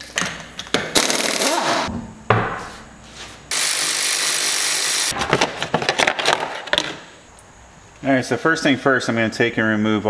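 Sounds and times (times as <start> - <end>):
pneumatic impact wrench: 0.9 - 1.9, 3.5 - 5.2.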